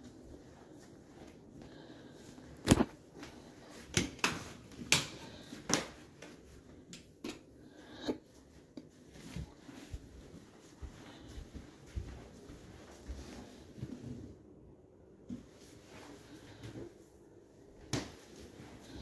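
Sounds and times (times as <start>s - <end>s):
footsteps on hardwood floor: 9.1s - 14.2s.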